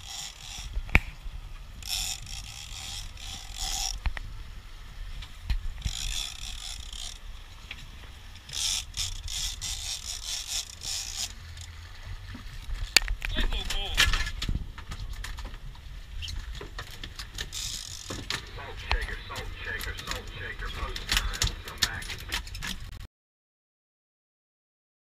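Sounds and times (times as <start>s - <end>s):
fishing reel ratcheting: 0.0s - 0.8s, 1.8s - 4.2s, 5.8s - 7.4s, 8.3s - 11.8s, 17.2s - 18.3s
boat low rumble: 0.0s - 23.0s.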